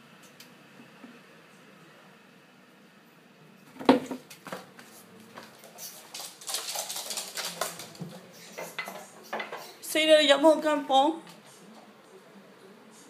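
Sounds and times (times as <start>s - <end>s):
rattling clatters and scrabbling: 5.6s - 9.6s.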